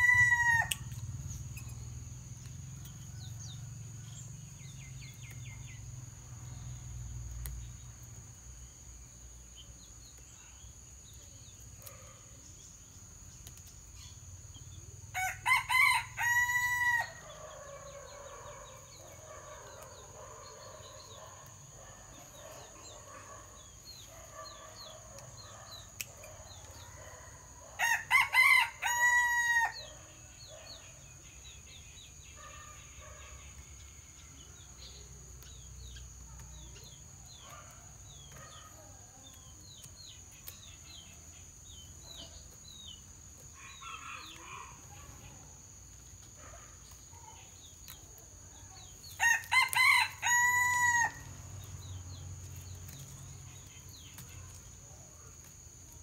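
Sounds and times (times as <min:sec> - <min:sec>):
rooster crowing: 0:00.0 - 0:00.9, 0:15.2 - 0:18.6, 0:27.8 - 0:29.9, 0:49.2 - 0:51.3.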